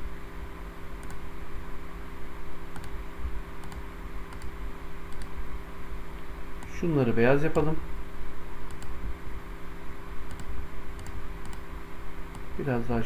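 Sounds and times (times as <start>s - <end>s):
steady low hum: 0.0s - 13.0s
computer mouse clicking: 1.0s - 1.2s, 2.7s - 3.0s, 3.6s - 5.4s, 8.6s - 9.0s, 10.3s - 11.7s.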